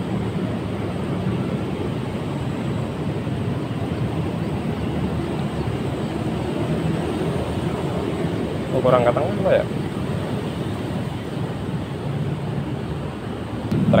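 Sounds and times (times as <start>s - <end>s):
low rushing rumble: 13.4s - 14.0s.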